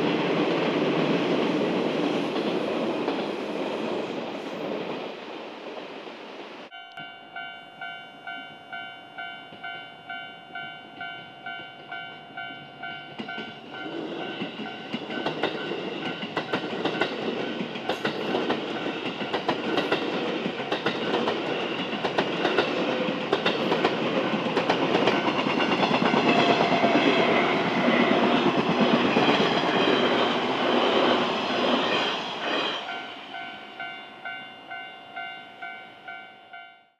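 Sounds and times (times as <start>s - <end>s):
electric train passing: 0.0s - 36.7s
level-crossing warning bell: 6.7s - 20.0s, 20.6s - 36.9s
wheels clicking over rail joints: 13.2s - 31.0s.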